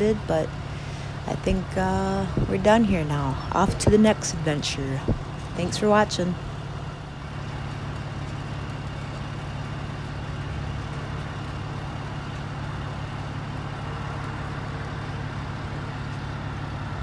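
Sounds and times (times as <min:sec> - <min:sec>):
diesel truck engine idling: 0:00.0 - 0:17.0.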